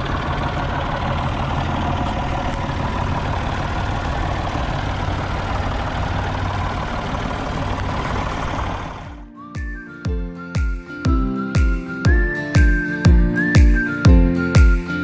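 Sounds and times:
forklift engine running: 0.0 - 9.2.

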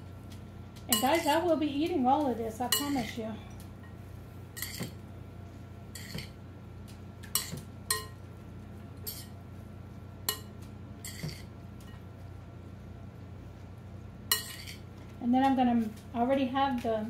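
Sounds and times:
faint steady hum: 0.0 - 17.0
spoon clinking in a bowl: 0.9 - 1.4, 2.7 - 3.2, 4.6 - 4.9, 7.4 - 8.2, 10.3 - 11.5, 14.3 - 14.8.

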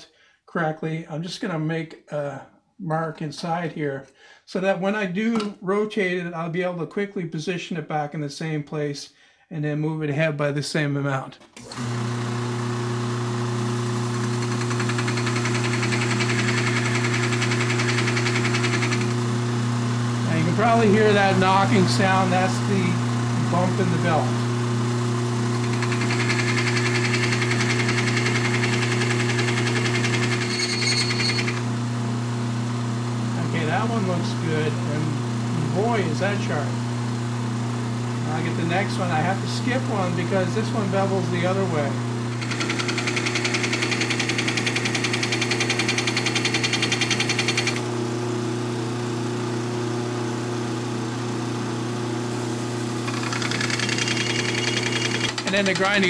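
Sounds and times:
sander motor hum: 11.6 - 56.0
belt sander grinding metal: 11.7 - 24.4, 25.3 - 32.2, 38.2 - 47.9, 52.3 - 56.0
thin whine: 30.2 - 31.7
grinding hiss: 52.3 - 56.0
rapid regular knocking: 53.1 - 56.0.

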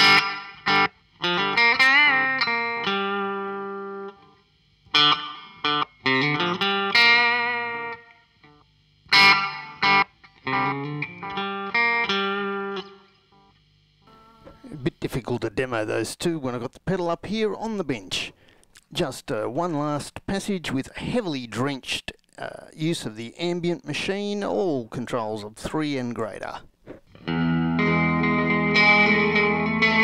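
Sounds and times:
electric guitar with reverb and delay: 0.0 - 4.3, 9.1 - 13.1, 27.2 - 30.0
strummed guitar chord: 0.0 - 4.3, 9.1 - 13.1, 27.2 - 30.0
bent guitar notes with vibrato: 0.0 - 13.1, 27.2 - 30.0.

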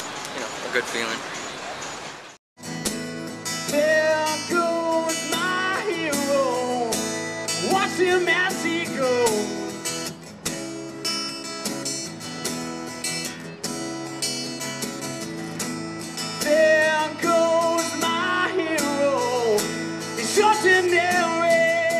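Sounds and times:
acoustic guitar strumming: 2.6 - 21.9
person singing: 3.7 - 9.8, 16.4 - 21.9.

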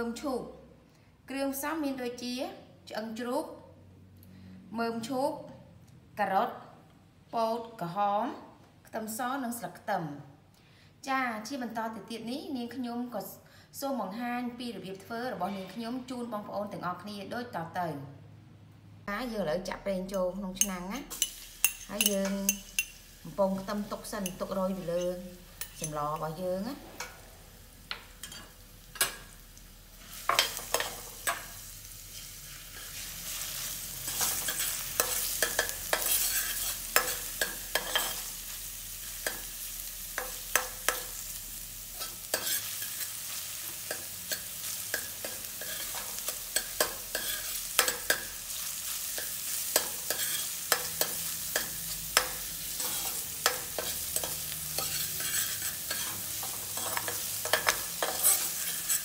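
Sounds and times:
garlic sizzling in hot oil: 20.6 - 59.0
metal spatula scraping a pot: 32.1 - 38.3, 42.0 - 43.2, 43.8 - 48.3, 49.1 - 59.0.

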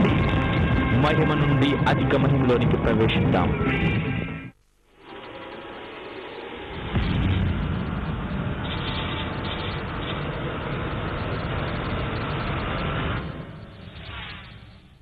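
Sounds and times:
sudden hit: 6.8 - 10.8.

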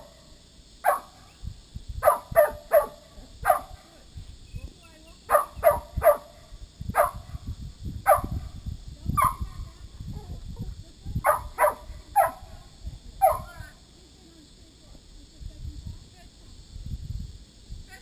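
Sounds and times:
dog barking: 0.8 - 1.2, 2.0 - 3.8, 5.3 - 6.4, 7.0 - 7.2, 8.1 - 8.4, 9.2 - 9.4, 11.2 - 12.5, 13.2 - 13.6.

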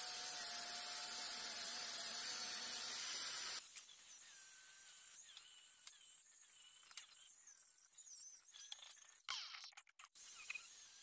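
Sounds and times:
grinder motor whine: 0.0 - 5.7.

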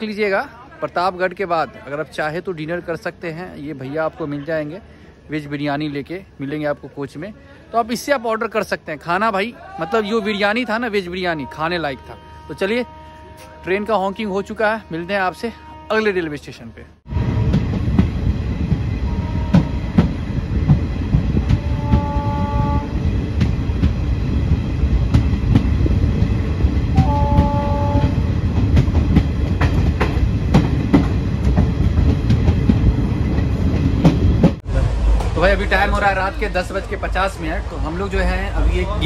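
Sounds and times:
train rumbling on track: 0.0 - 39.0
train horn blasts: 11.2 - 16.4, 19.0 - 20.0, 21.4 - 23.1, 26.9 - 28.3.

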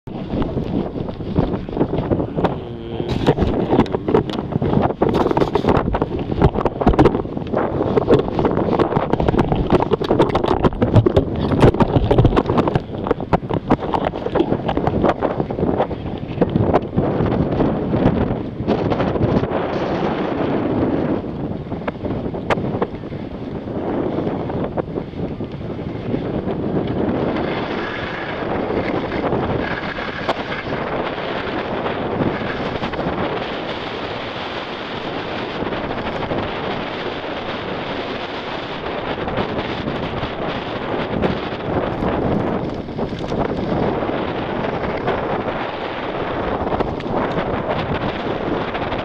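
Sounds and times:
wind buffeting microphone: 0.0 - 49.0
knocks and crackles: 0.1 - 17.0, 41.2 - 45.3.

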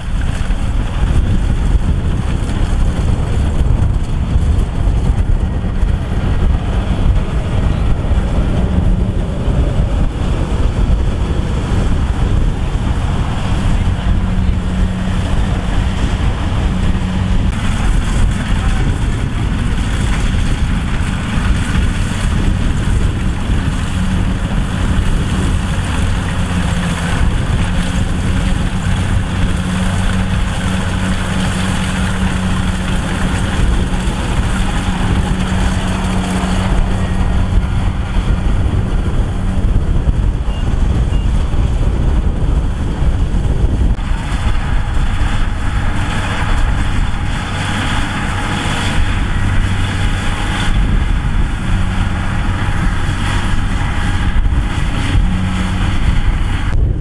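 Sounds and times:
combine harvester diesel engine drone: 0.0 - 57.0
working machinery noise: 0.0 - 57.0.

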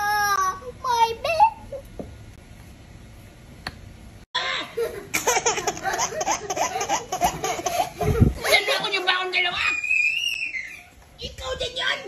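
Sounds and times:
baby giggling: 4.7 - 8.7.

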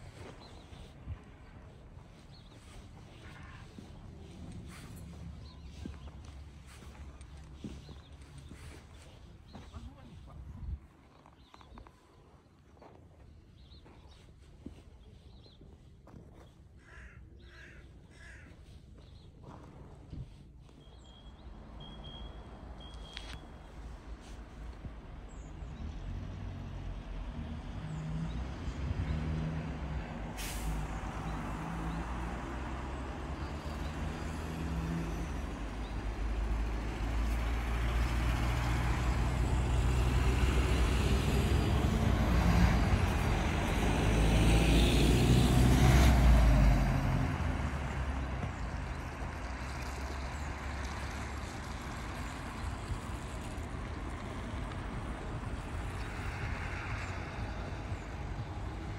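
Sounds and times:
minibus engine running: 20.7 - 28.2, 28.9 - 58.9.

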